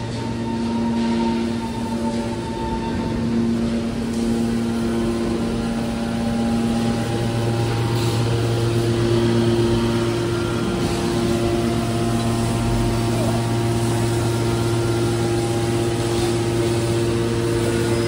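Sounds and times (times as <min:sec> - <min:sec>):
hydraulic machine hum: 0:00.0 - 0:18.0.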